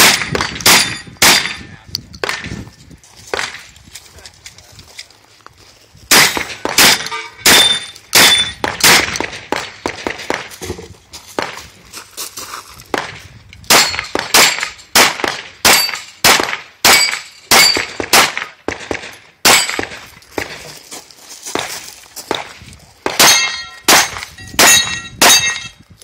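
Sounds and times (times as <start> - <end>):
pistol shots: 0.0 - 2.6, 6.1 - 10.6, 12.9 - 20.6, 21.6 - 25.7
ringing steel targets: 0.0 - 2.6, 6.1 - 9.2, 13.7 - 18.6, 19.4 - 20.0, 23.2 - 25.8
shotgun blasts: 0.0 - 2.6, 6.1 - 10.8, 12.9 - 20.7, 22.3 - 25.6.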